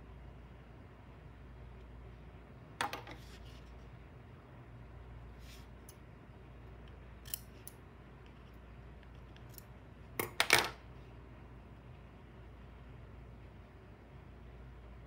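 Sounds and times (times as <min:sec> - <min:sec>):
scissors cutting yarn: 0:07.2 - 0:07.7
scissors clattering on wooden table: 0:07.2 - 0:07.8, 0:10.2 - 0:10.8.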